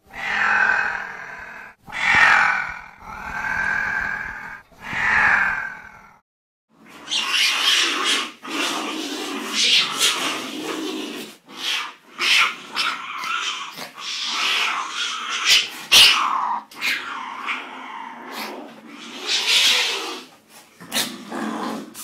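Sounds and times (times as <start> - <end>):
wild cat rough cries: 0.0 - 6.2.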